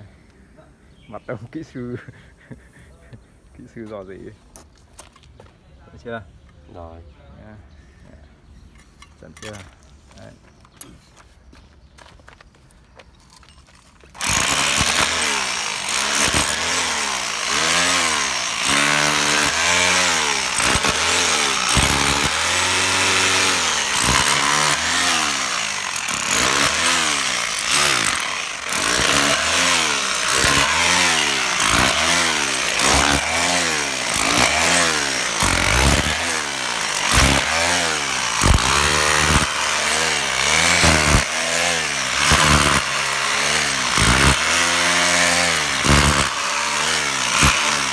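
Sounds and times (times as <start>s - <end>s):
demolition hammer chiselling asphalt: 14.1s - 47.9s.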